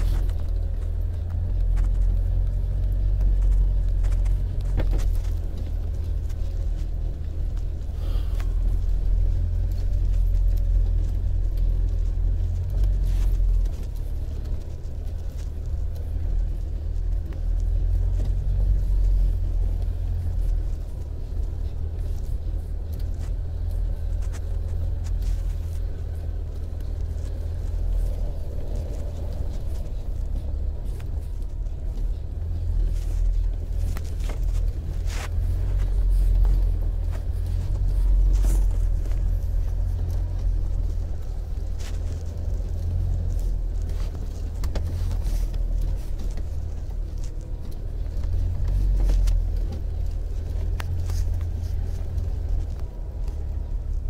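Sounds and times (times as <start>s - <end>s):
car driving low rumble: 0.0s - 54.0s.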